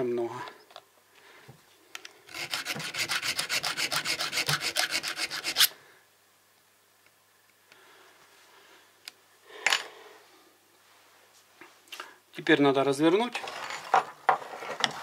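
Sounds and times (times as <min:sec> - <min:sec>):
needle file rasping on chain: 0:02.3 - 0:05.7.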